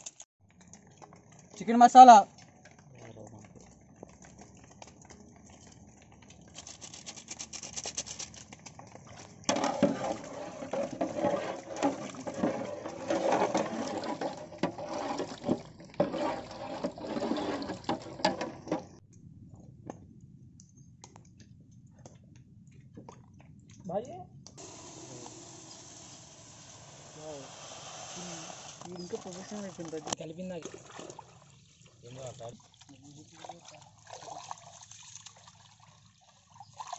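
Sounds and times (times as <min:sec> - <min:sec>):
wet sloshing and squelching: 0:02.3 - 0:19.0, 0:28.2 - 0:36.9
paddle knocking against pot: 0:09.5 - 0:19.0.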